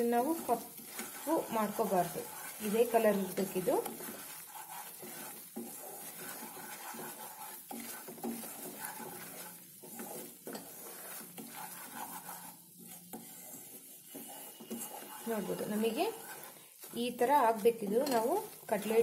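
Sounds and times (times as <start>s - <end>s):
faint sizzling: 0.0s - 19.0s
wooden spatula scraping pan: 0.0s - 19.0s.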